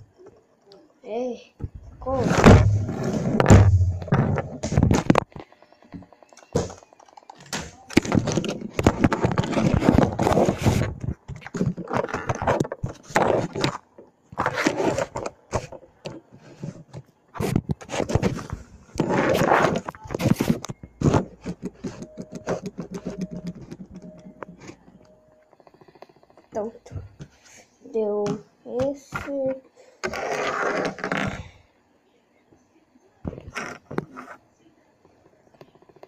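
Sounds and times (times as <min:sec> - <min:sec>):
spinning tops scraping in plastic arena: 0:30.0 - 0:31.3.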